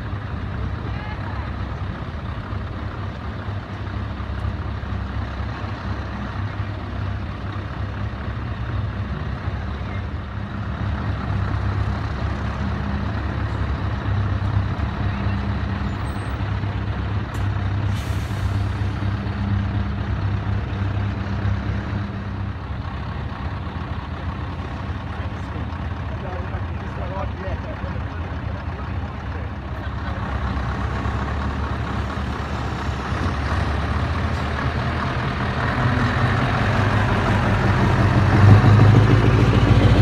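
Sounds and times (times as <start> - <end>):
diesel truck engine at low revs: 0.0 - 40.0
air brakes hissing: 17.8 - 19.0.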